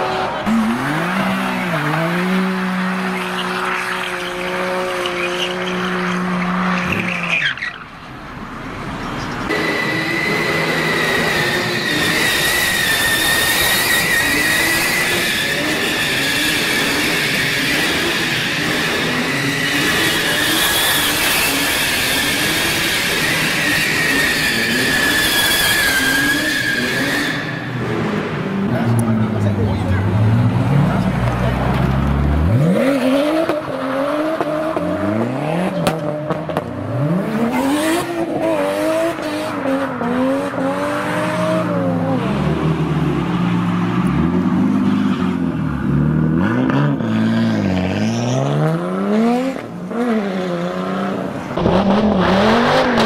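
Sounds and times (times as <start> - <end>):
car engine revving: 0.0 - 7.6, 9.5 - 53.0
tyre squeal: 3.1 - 7.9, 9.0 - 27.9.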